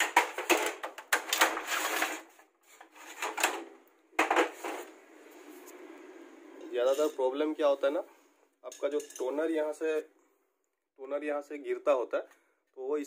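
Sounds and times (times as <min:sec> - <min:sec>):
plastic paper trays scraping and sliding: 0:00.0 - 0:06.0.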